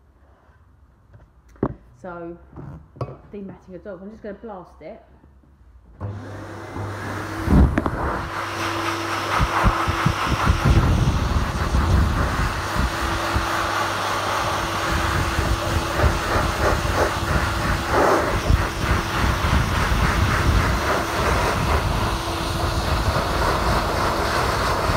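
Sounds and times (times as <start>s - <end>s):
high-velocity dryer blowing air: 6.0s - 24.9s.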